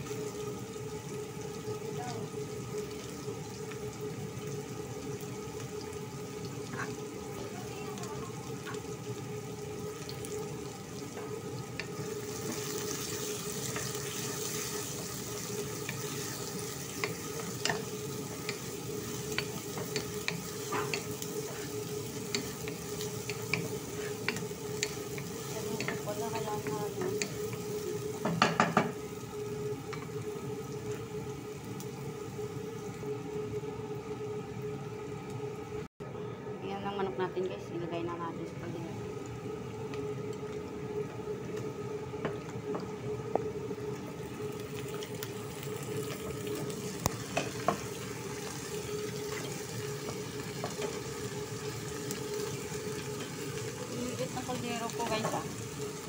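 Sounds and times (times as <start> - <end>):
onion sizzling in hot oil: 0.0 - 35.8, 38.9 - 56.0.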